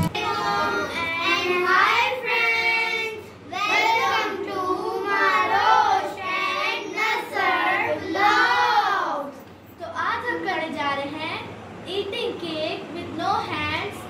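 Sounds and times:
children singing together: 0:00.1 - 0:09.0.

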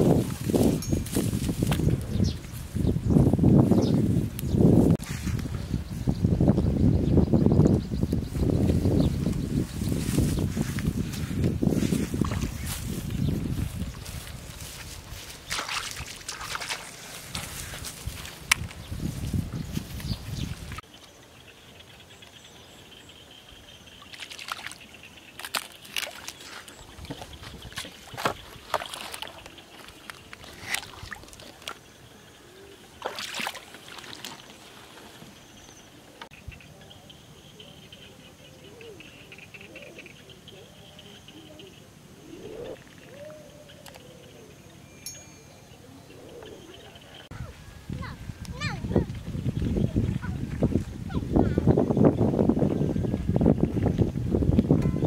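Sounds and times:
birds calling: 0:05.6 - 0:54.0
feet splashing through muddy water: 0:10.2 - 0:18.7, 0:24.1 - 0:31.8, 0:32.9 - 0:35.3
dove cooing: 0:38.4 - 0:44.6, 0:45.8 - 0:47.5
faint steady high tone: 0:44.3 - 0:47.9.

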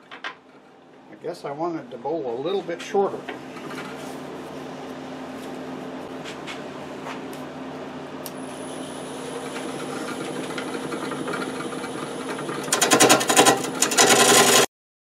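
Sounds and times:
thin high whine: 0:08.2 - 0:12.6
wood lathe motor hum: 0:08.3 - 0:14.7
gouge scraping spinning wood: 0:09.3 - 0:14.7.

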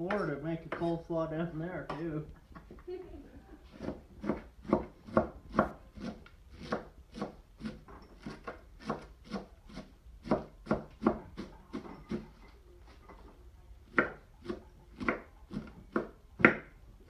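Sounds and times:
knife chopping on wood: 0:03.8 - 0:12.3, 0:13.9 - 0:16.8.

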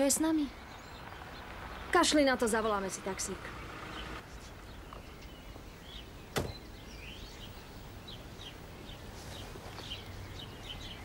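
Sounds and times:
small birds chirping: 0:00.0 - 0:11.0
sharp knock: 0:06.3 - 0:06.6.

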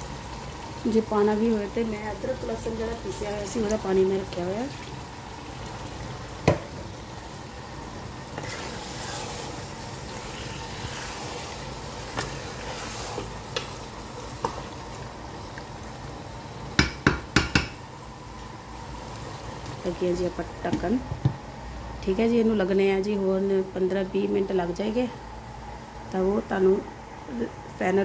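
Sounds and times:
food sizzling in a pot: 0:00.0 - 0:22.2
wooden spatula stirring: 0:08.3 - 0:15.0.

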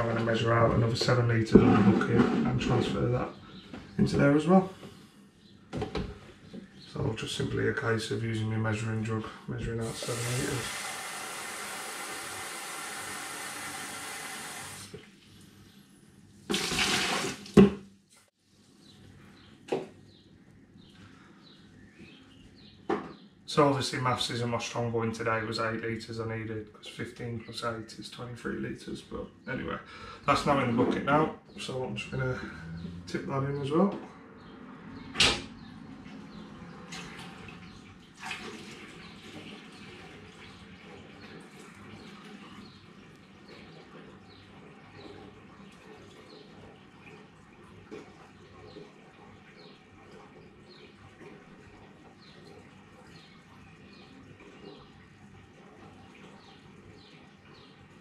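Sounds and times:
water poured into plastic bucket: 0:09.8 - 0:14.9, 0:16.5 - 0:17.7, 0:36.9 - 0:40.5
water splash: 0:16.5 - 0:17.8, 0:38.2 - 0:39.0.

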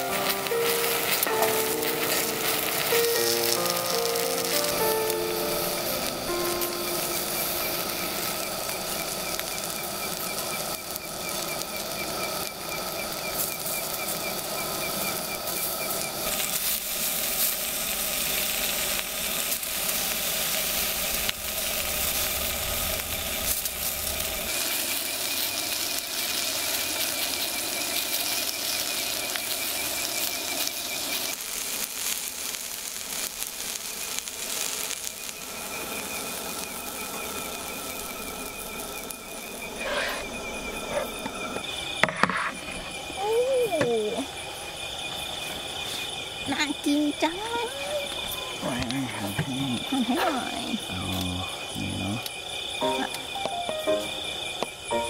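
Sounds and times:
high pulsing trill: 0:00.0 - 0:10.0
food sizzling on griddle: 0:00.0 - 0:55.0.

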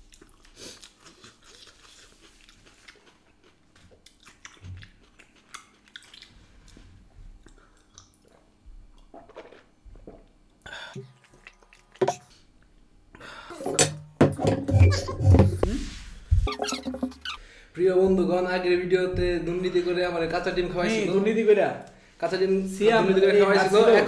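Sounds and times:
chewing and mouth sounds: 0:00.0 - 0:10.4, 0:11.0 - 0:12.4.

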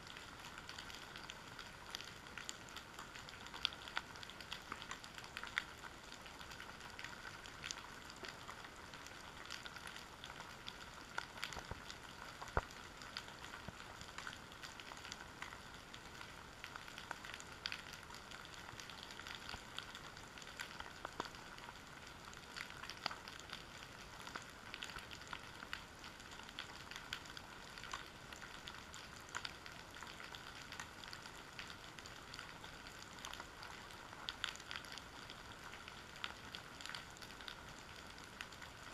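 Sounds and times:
underwater crackling clicks: 0:06.6 - 0:16.3.

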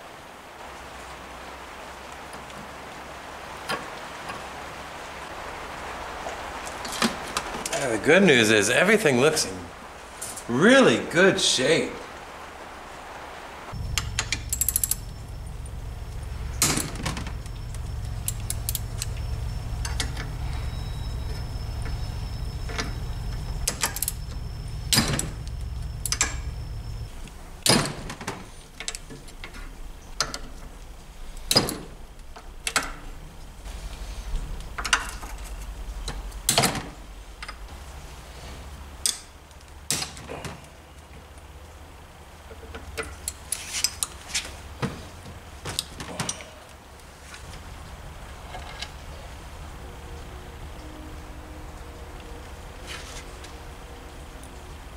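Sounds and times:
low hum: 0:12.0 - 0:39.0
metal tools clinking on engine: 0:13.8 - 0:27.0.

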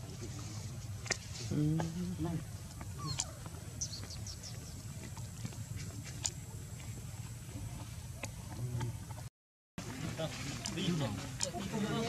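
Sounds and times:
faint animal squeaks: 0:03.0 - 0:04.8.

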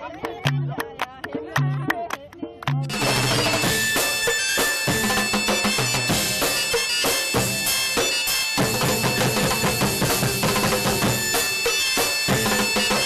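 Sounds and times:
fast busy drumming: 0:00.0 - 0:13.0
reedy wind instrument droning: 0:02.9 - 0:13.0.

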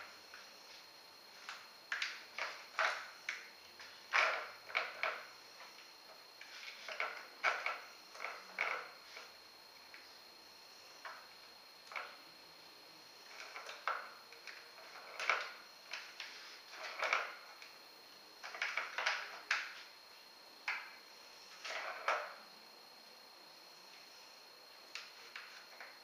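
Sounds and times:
ball clattering on plastic track: 0:01.4 - 0:05.8, 0:06.4 - 0:09.3, 0:11.9 - 0:12.2, 0:13.3 - 0:17.7, 0:18.4 - 0:19.9, 0:21.6 - 0:22.4.

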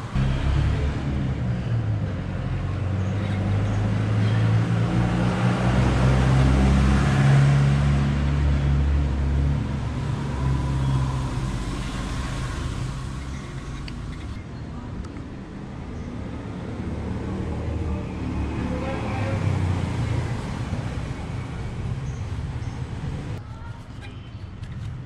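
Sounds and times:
motor vehicle engine running: 0:00.0 - 0:05.1.

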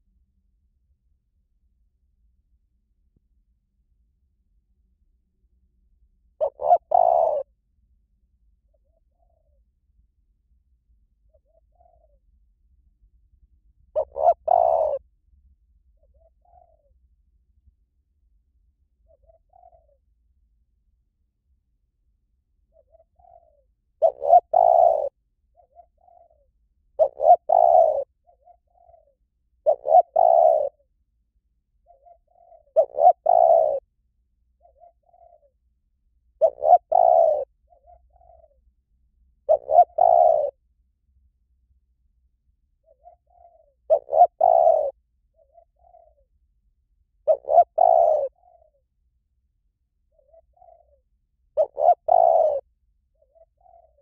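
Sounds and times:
dove cooing: 0:06.4 - 0:07.5, 0:08.7 - 0:09.6, 0:11.3 - 0:12.2, 0:14.0 - 0:15.1, 0:16.0 - 0:17.0, 0:19.0 - 0:20.1, 0:22.7 - 0:30.9, 0:31.8 - 0:33.9, 0:34.6 - 0:35.6, 0:36.4 - 0:38.7, 0:39.4 - 0:40.6, 0:42.8 - 0:46.3, 0:47.2 - 0:48.8, 0:50.1 - 0:54.0.

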